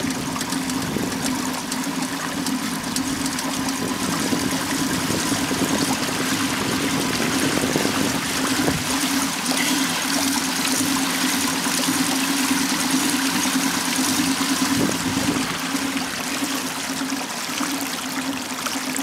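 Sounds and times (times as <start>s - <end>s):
steady low hum: 0.0s - 18.7s
water rushing along a hull: 0.0s - 19.0s.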